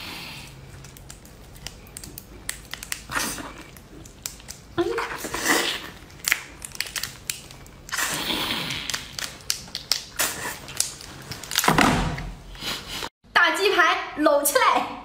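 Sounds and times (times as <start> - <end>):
prawn shell clicks and crackles: 0.5 - 4.8, 5.9 - 8.0, 8.7 - 11.7.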